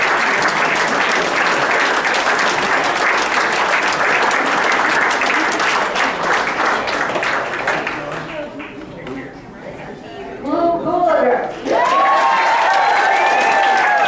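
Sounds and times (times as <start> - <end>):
crowd applauding: 0.0 - 8.8, 11.7 - 14.0.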